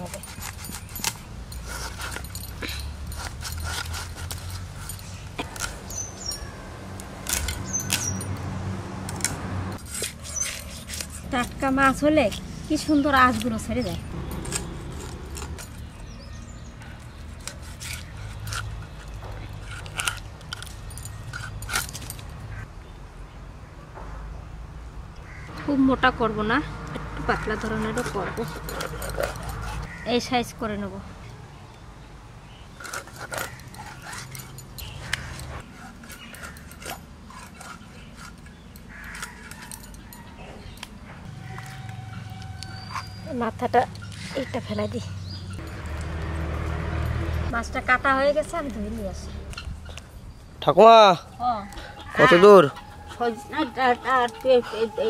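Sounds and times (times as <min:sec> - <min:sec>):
fish scraped and cut on blade: 0:09.8 - 0:11.6.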